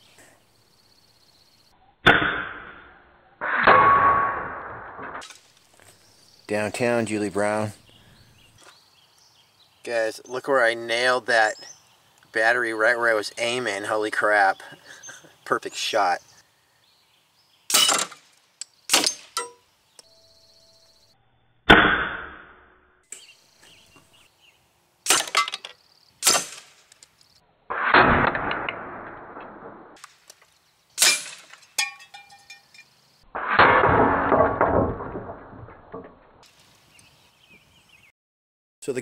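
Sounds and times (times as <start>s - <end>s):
pellets hitting targets: 25.0s - 27.0s, 31.0s - 32.8s
metallic ringing and rattle: 31.0s - 33.0s.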